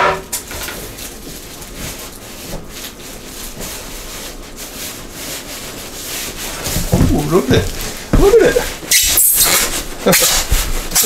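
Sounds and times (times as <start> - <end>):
plastic and styrofoam rustling: 0.3 - 11.0
light bumps: 6.6 - 8.8.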